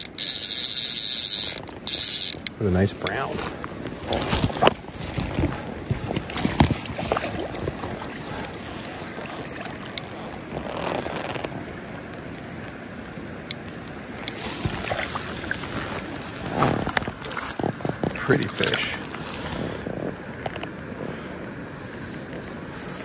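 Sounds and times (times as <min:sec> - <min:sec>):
water splashing and lapping: 0:00.0 - 0:23.0
wind on microphone: 0:02.9 - 0:12.0, 0:14.1 - 0:23.0.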